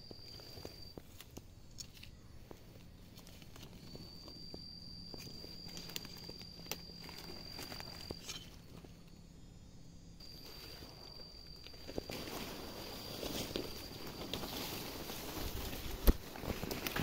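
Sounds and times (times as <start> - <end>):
high-pitched insect call: 0.0 - 17.0
footsteps crunching dry leaves: 10.2 - 17.0.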